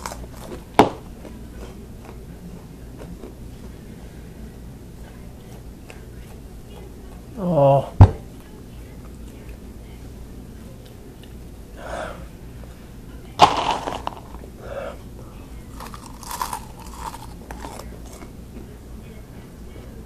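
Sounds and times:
crunching snack: 0:00.0 - 0:00.6, 0:13.4 - 0:14.4, 0:15.7 - 0:18.3
man breathing hard: 0:11.8 - 0:12.3, 0:14.6 - 0:15.0
sharp huff of breath: 0:11.8 - 0:12.3.

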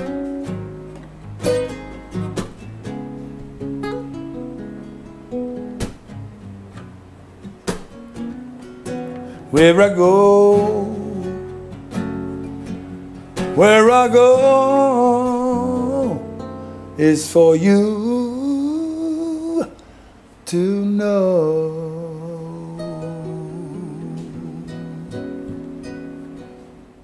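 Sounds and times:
acoustic guitar played slowly: 0:00.0 - 0:27.0
man singing: 0:09.4 - 0:11.8, 0:13.4 - 0:19.8, 0:20.4 - 0:25.6.

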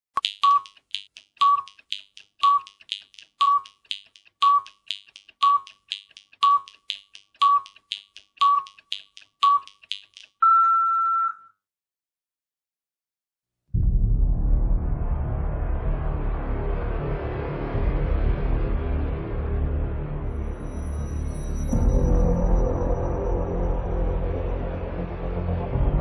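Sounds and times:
short beeps: 0:00.2 - 0:00.8, 0:06.4 - 0:07.8, 0:10.4 - 0:11.6
steady clicking: 0:00.2 - 0:10.4.

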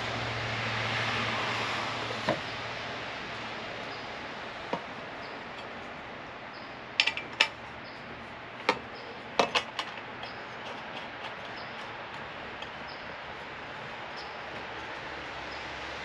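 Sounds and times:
small hard parts clacking: 0:06.9 - 0:15.7.

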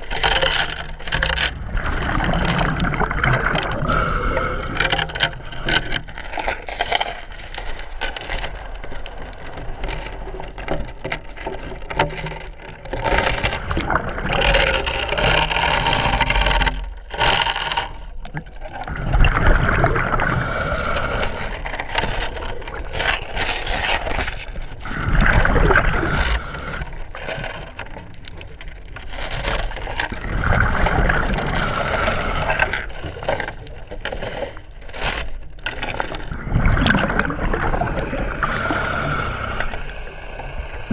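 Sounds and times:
gurgling exhaled bubbles: 0:00.0 - 0:05.9, 0:13.0 - 0:27.8, 0:29.1 - 0:33.2, 0:35.7 - 0:40.9.

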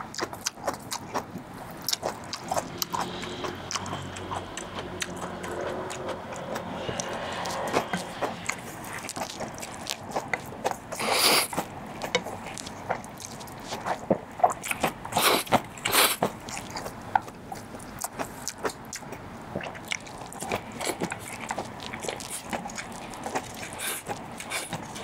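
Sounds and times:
wet chewing: 0:00.0 - 0:25.0
man slurping noodles: 0:11.0 - 0:11.5.

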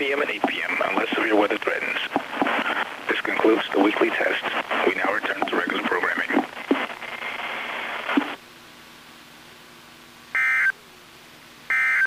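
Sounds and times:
radio announcement voice: 0:00.0 - 0:08.4
radio static: 0:00.0 - 0:08.4.

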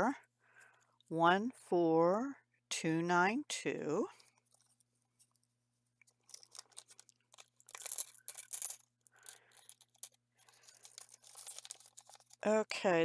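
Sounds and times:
plastic bags crinkling: 0:04.2 - 0:12.9.

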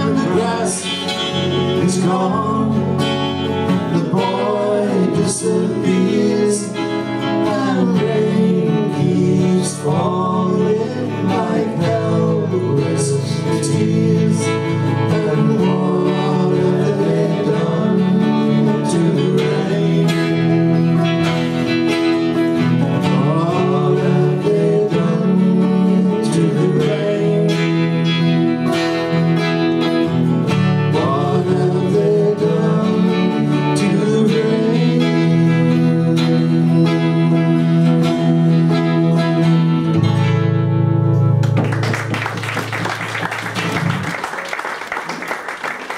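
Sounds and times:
person singing: 0:00.0 - 0:21.1, 0:23.0 - 0:28.7, 0:30.8 - 0:39.9
acoustic guitars strummed and picked: 0:00.0 - 0:45.9.

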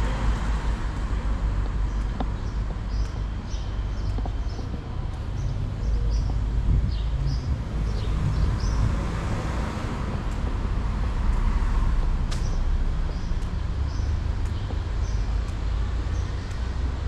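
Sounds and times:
low traffic rumble: 0:00.0 - 0:17.0
birds chirping: 0:01.2 - 0:10.4, 0:11.8 - 0:17.0
vehicle passing: 0:05.2 - 0:17.0
sharp click: 0:12.3 - 0:12.6.

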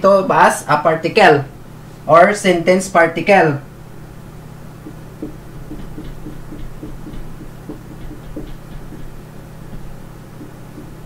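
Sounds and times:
steady low hum: 0:00.0 - 0:11.0
marker squeaking on whiteboard: 0:04.9 - 0:09.2.

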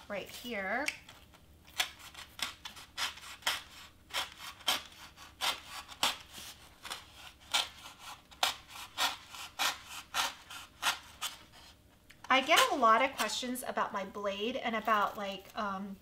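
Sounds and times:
craft knife cutting foam board: 0:01.7 - 0:13.4.

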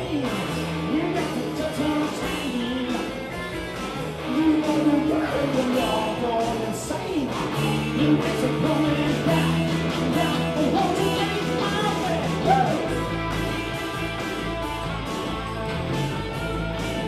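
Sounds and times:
rock band playing live: 0:00.0 - 0:17.0.

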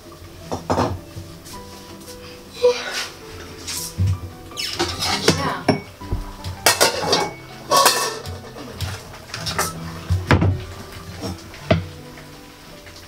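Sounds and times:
pots and dishes clattering: 0:00.0 - 0:13.0
wooden stick stirring metal pot: 0:01.4 - 0:06.0, 0:06.6 - 0:11.9.

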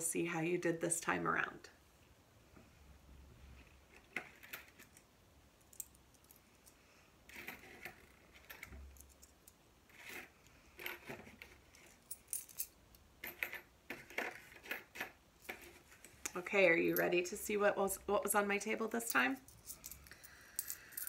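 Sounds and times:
coins clinking on tabletop: 0:07.3 - 0:16.1, 0:19.1 - 0:21.0.

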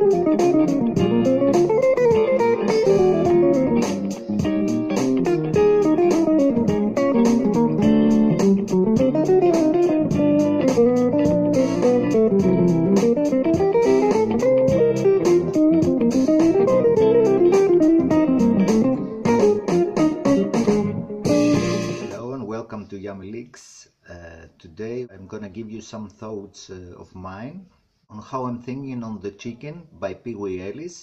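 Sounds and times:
electric guitar solo: 0:00.0 - 0:22.1.

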